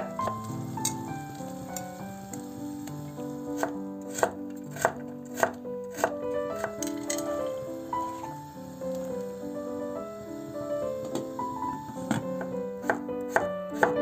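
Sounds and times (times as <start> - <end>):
piano music: 0.0 - 14.0
knife chopping on wooden board: 3.6 - 6.9.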